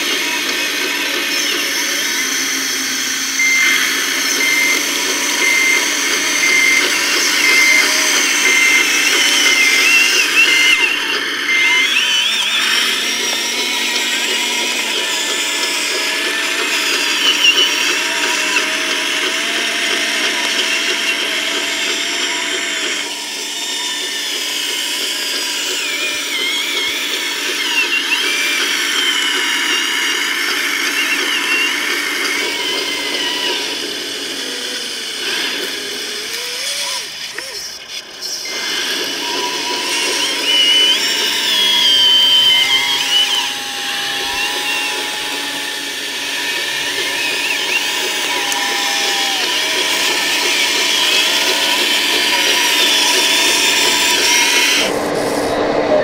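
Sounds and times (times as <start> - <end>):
small electric motors whining: 0.0 - 56.0
warning beep: 3.4 - 18.7, 38.5 - 49.4.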